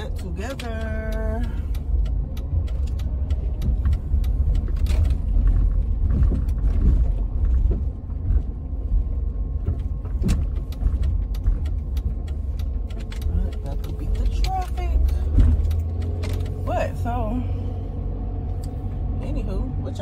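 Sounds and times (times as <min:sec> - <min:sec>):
minivan driving rumble: 0:00.0 - 0:20.0
small clicks and rattles: 0:00.1 - 0:16.6.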